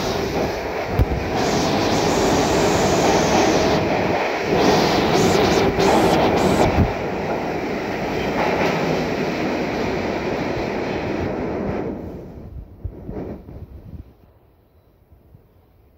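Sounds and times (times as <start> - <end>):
hiss: 0.0 - 7.2
subway train wheels on track: 0.0 - 15.6.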